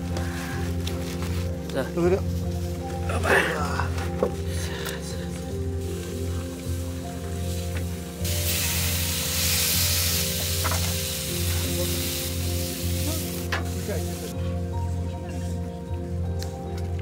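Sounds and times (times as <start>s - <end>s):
meat sizzling on a grill: 5.8s - 14.3s.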